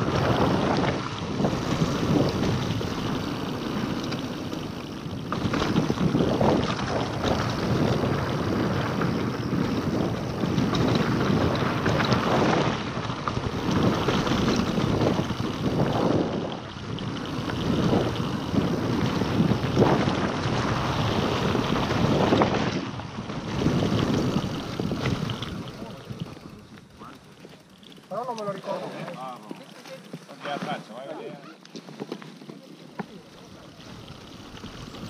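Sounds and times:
wind buffeting microphone: 0.0 - 26.6
bike clicks and knocks: 0.1 - 23.0, 23.6 - 30.8, 31.6 - 35.0.

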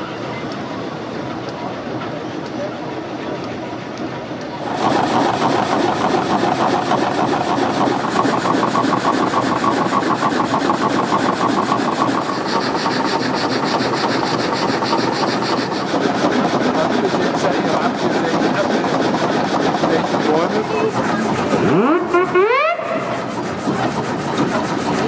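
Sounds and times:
drive gear running: 3.4 - 22.2
saw blade rasping through log: 4.6 - 22.0, 22.9 - 25.0.

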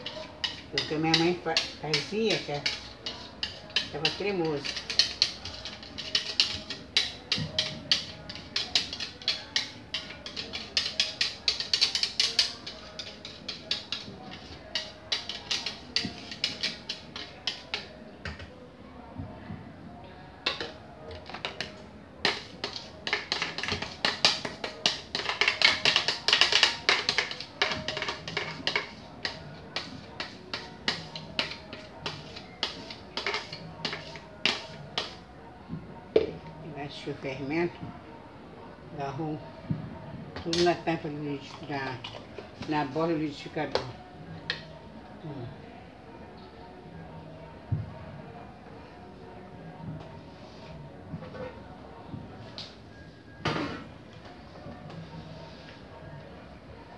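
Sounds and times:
spoon scraping plastic jar: 0.0 - 18.0.

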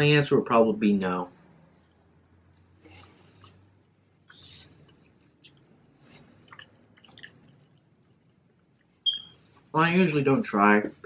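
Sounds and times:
faint chewing: 4.3 - 9.0.

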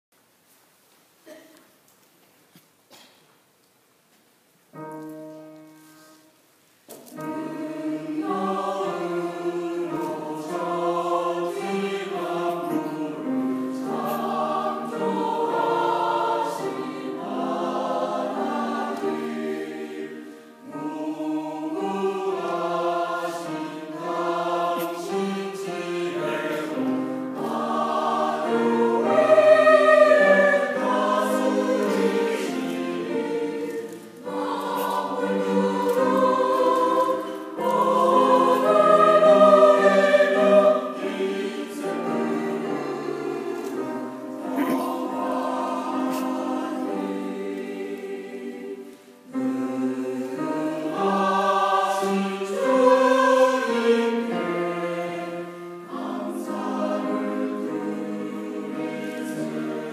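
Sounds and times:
choir singing a hymn: 6.9 - 59.9.

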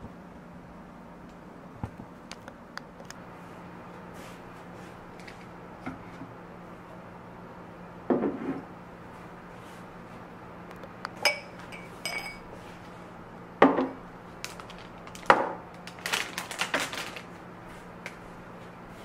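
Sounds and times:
glass tumblers clinking: 11.2 - 12.5
plastic bag rustling: 14.3 - 17.5.

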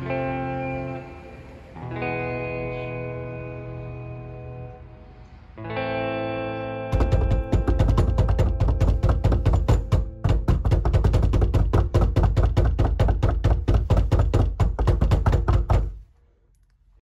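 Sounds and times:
music with pounding beat: 7.0 - 10.6.

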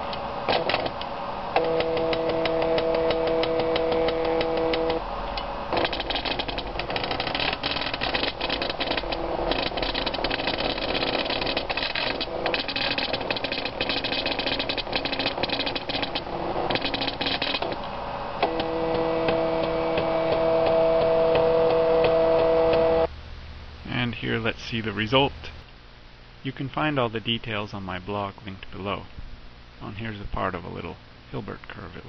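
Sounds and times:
pen plotter clattering buzz: 0.0 - 23.1
motor steady hum with tones: 0.0 - 23.8.

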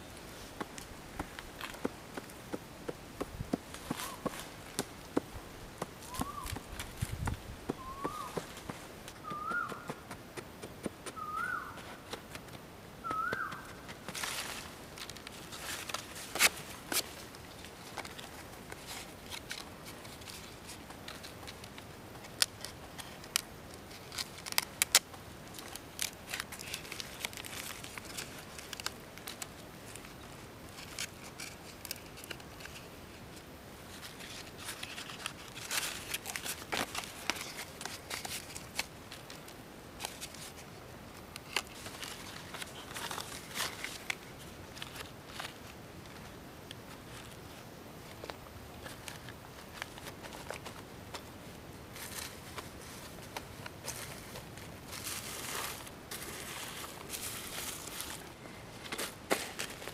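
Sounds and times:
leaves rustling and crinkling: 0.0 - 59.9
bird rising call: 6.0 - 6.6, 7.7 - 8.5, 9.2 - 10.0, 11.2 - 11.8, 13.0 - 13.8.

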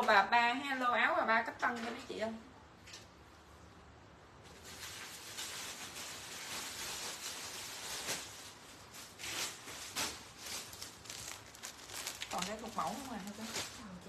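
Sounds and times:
cloth rustling and swishing: 4.4 - 14.0.

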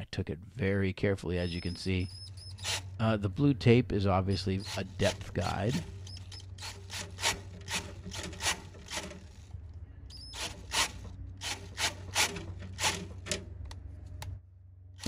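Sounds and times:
drill bit scraping metal: 1.5 - 2.9, 4.3 - 9.2
drill motor hum: 1.5 - 3.0, 4.3 - 9.5, 10.1 - 13.3.

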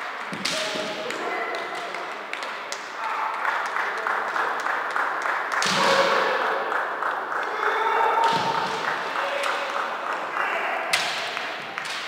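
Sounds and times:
people shouting: 5.6 - 6.6, 7.5 - 9.7.

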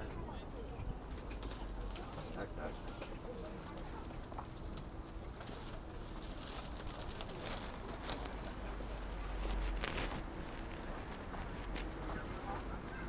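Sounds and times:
rustling: 5.4 - 13.0.

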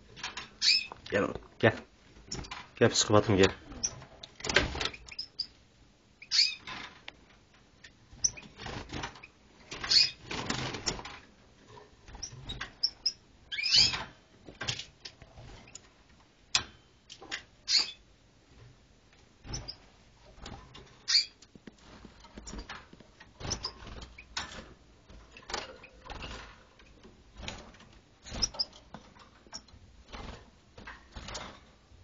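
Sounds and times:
small animal chirps and squeaks: 0.6 - 1.0, 6.2 - 6.7, 9.9 - 10.2, 12.2 - 14.0, 17.7 - 18.0, 21.0 - 21.4.

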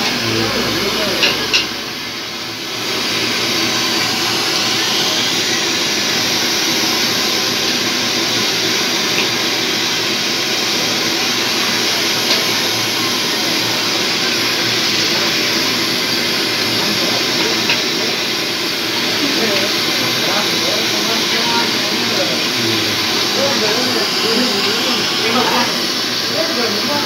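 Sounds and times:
deep-frying oil sizzling: 0.0 - 27.0.

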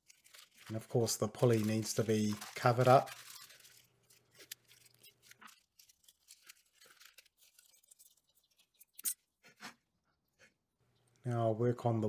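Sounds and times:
newspaper and tape crinkling: 0.0 - 9.7.

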